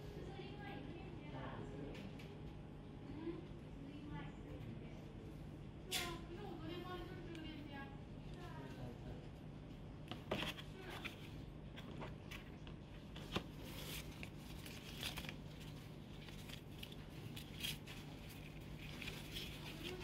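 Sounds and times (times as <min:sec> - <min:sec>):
faint low hum: 0:00.0 - 0:20.0
paper rustling and crinkling: 0:10.2 - 0:20.0.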